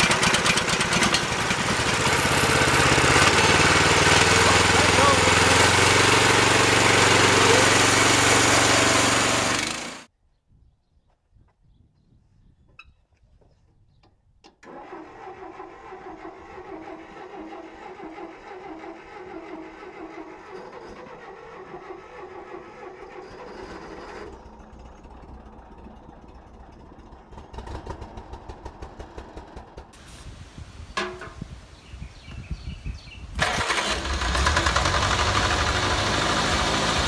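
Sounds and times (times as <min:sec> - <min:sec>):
tractor engine cranking: 0:00.0 - 0:10.1, 0:14.6 - 0:30.2, 0:33.3 - 0:37.0
uneven low engine pulsing: 0:00.0 - 0:10.1.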